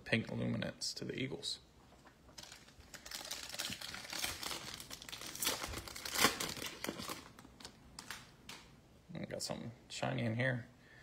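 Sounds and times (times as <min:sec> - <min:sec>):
foil wrapper crinkling and tearing: 0:02.3 - 0:08.3.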